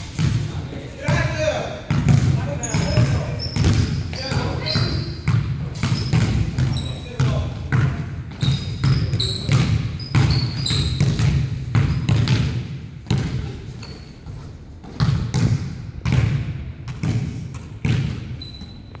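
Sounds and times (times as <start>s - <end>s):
basketball bouncing on hardwood: 1.9s - 13.5s, 14.8s - 18.3s
sneaker squeaks: 2.4s - 12.4s, 13.1s - 15.2s, 17.6s - 19.0s.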